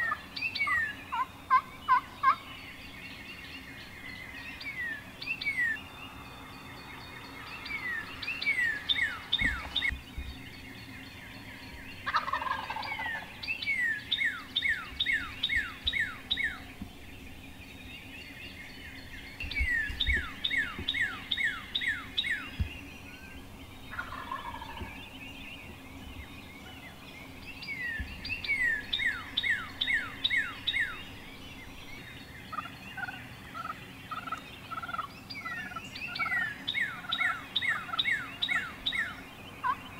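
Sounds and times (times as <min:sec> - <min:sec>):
turkey gobbling: 0:00.0 - 0:02.4, 0:12.0 - 0:13.3, 0:23.9 - 0:24.9, 0:32.5 - 0:36.4, 0:37.0 - 0:39.8
songbird whistling: 0:04.6 - 0:05.9, 0:07.4 - 0:10.0, 0:11.7 - 0:16.7, 0:18.8 - 0:25.2, 0:27.6 - 0:39.9.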